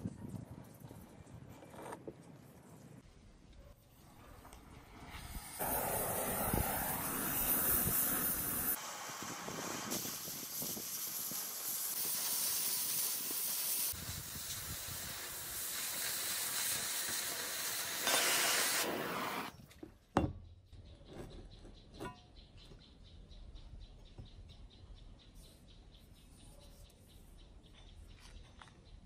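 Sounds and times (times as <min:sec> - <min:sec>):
cutting torch hissing: 0:04.6 - 0:19.5.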